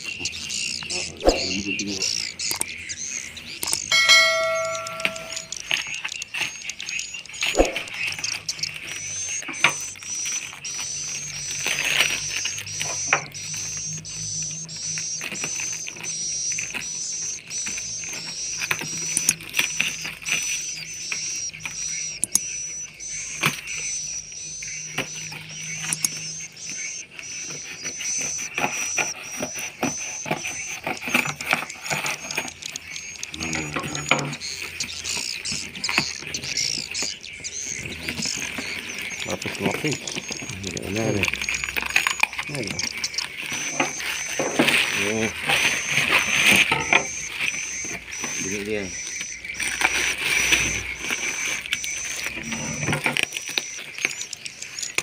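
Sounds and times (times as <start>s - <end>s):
high chirp: 0.0s - 55.0s
chime: 3.9s - 6.2s.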